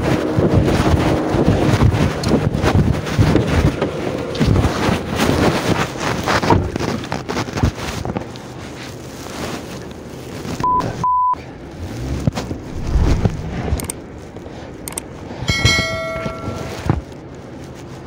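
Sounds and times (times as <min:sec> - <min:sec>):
wind and handling rumble: 0:00.0 - 0:10.8, 0:11.4 - 0:18.0
censor bleeps: 0:10.6 - 0:11.4
bright ringing chime: 0:15.5 - 0:16.9.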